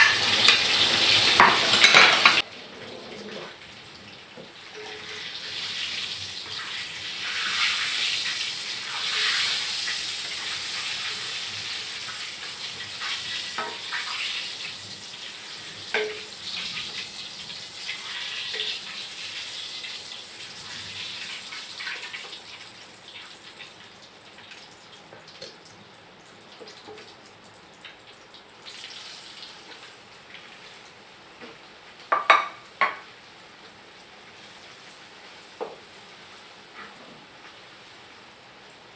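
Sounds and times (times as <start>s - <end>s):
food frying in oil in a wok: 0.0s - 38.9s
utensils clinking: 1.4s - 2.4s.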